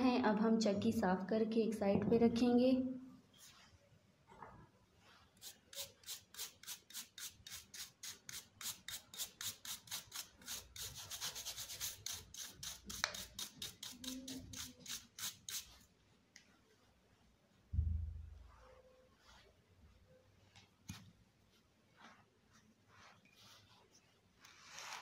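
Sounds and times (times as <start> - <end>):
bristle brush scrubbing stone: 5.1 - 16.0.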